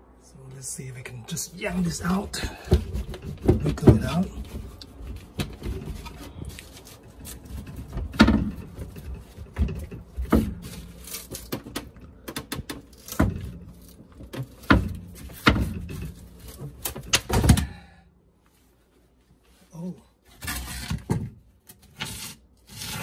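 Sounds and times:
particle board cracking and knocking: 2.5 - 17.6.

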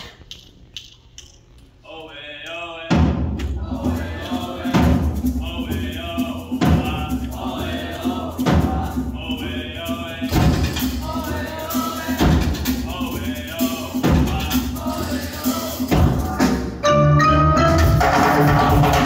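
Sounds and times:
drums: 2.8 - 19.0
marimbas: 3.6 - 19.0
vibraphones: 16.8 - 19.0.

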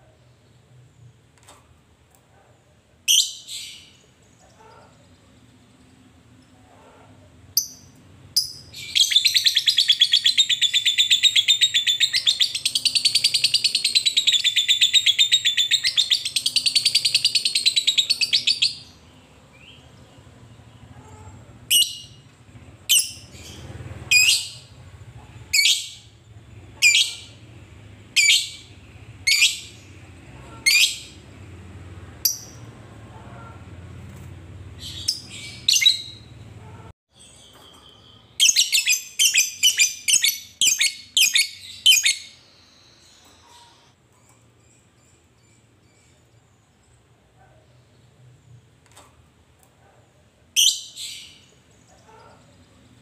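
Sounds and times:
bird chirps: 7.6 - 21.1, 21.7 - 31.2, 34.8 - 36.4, 37.1 - 47.0.

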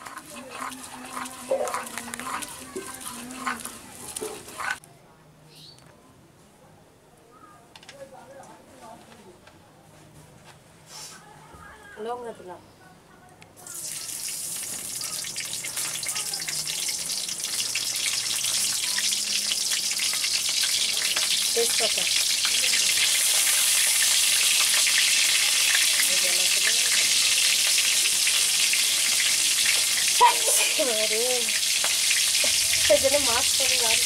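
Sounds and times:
chillies sizzling in hot oil: 0.0 - 4.8, 13.6 - 34.0.

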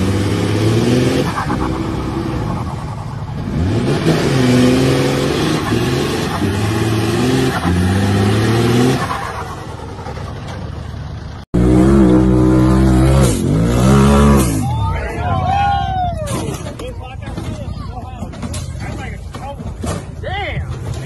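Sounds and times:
steady off-road vehicle engine: 0.0 - 21.0
engine revving hard: 3.4 - 9.5, 11.6 - 14.6
wheels spinning in loose dirt: 9.0 - 11.4.

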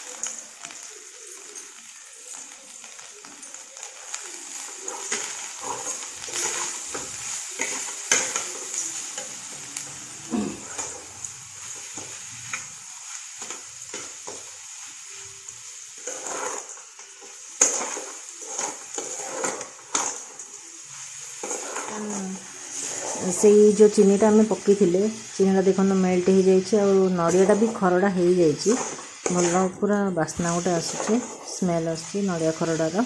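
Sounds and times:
metal spatula scraping a pan: 4.5 - 9.8, 15.7 - 24.2, 27.2 - 33.0.

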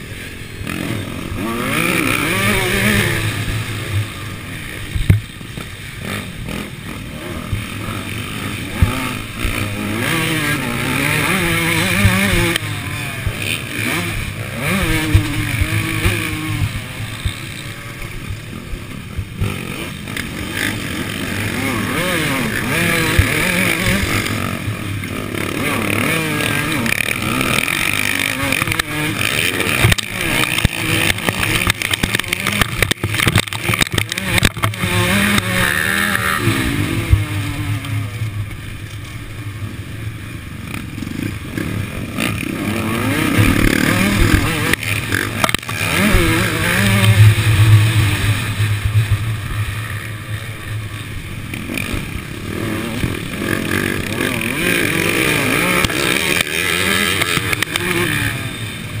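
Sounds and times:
motocross bike engine revving: 0.0 - 59.0
other motocross bikes running: 0.0 - 59.0
sharp knocks and rattles: 29.7 - 36.4.

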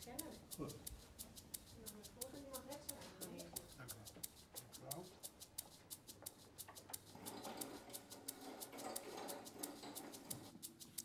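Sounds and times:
clock ticking: 0.0 - 11.0.

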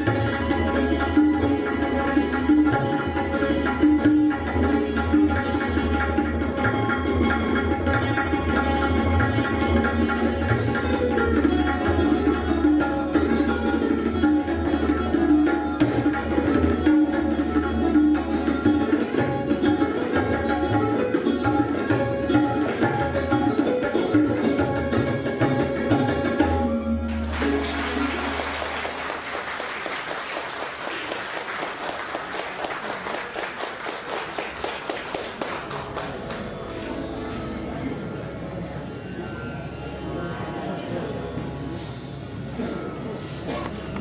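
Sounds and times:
tabla drumming: 0.0 - 36.7
audience applause: 27.2 - 36.6
plucked sarod melody: 35.9 - 44.0.

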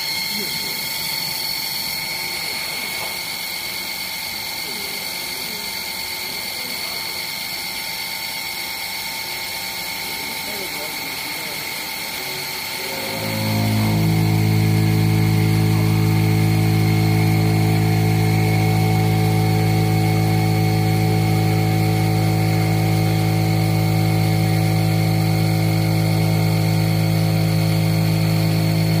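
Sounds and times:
router spindle humming: 9.2 - 29.0.

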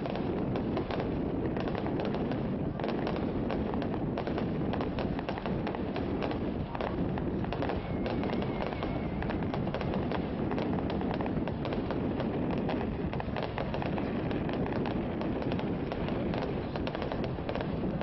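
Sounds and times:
fireworks crackling and banging: 0.0 - 18.0
firework whistle: 7.4 - 10.7.

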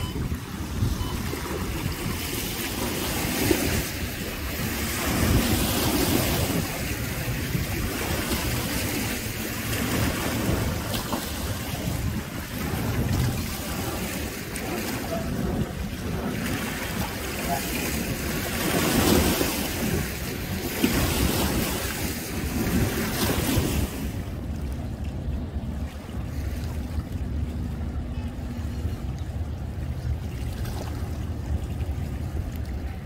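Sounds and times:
small waves lapping and splashing: 0.0 - 33.0
wind buffeting microphone: 0.0 - 33.0.

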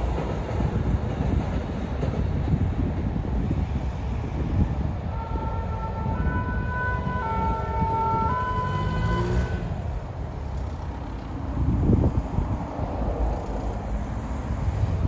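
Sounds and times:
two-tone emergency siren: 5.1 - 9.8.

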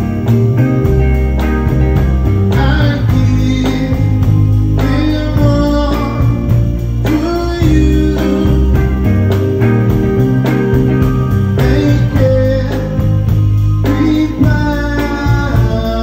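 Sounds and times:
live soul band playing: 0.0 - 16.0
person singing: 2.5 - 9.3, 11.5 - 16.0.

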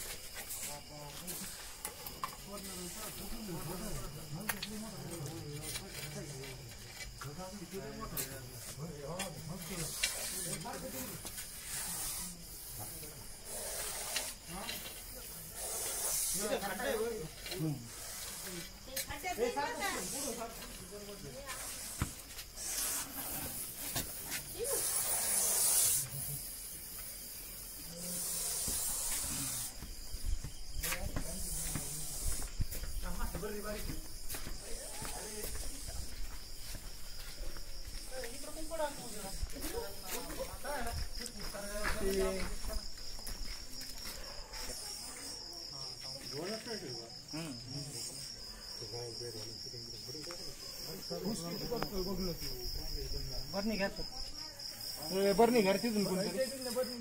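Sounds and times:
crickets chirring: 0.0 - 57.0
snake hissing: 9.6 - 33.3.

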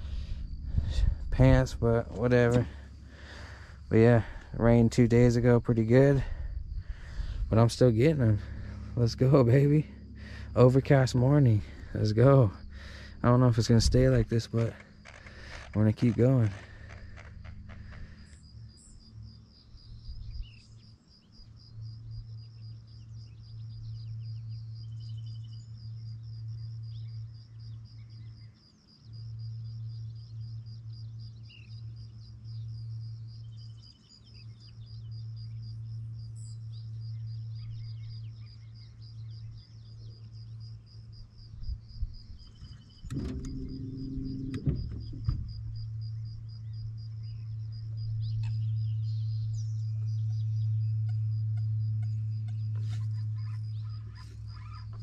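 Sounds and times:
electric motor humming: 43.1 - 46.1
knocks on boat: 43.2 - 45.6.

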